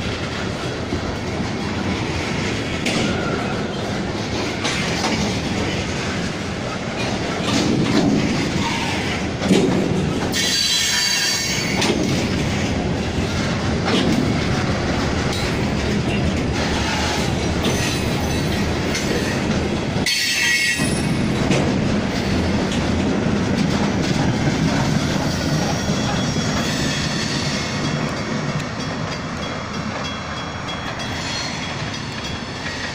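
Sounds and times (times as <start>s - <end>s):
train wheels rumbling on rail: 0.0s - 32.9s
high-pitched wheel squeals: 25.7s - 27.8s.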